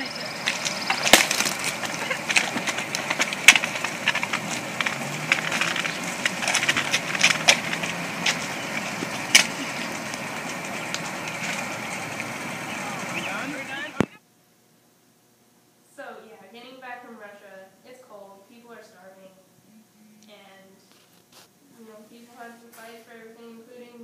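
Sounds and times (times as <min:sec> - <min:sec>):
footsteps on wet pavement: 0:00.0 - 0:14.2
outdoor hiss: 0:00.0 - 0:24.0.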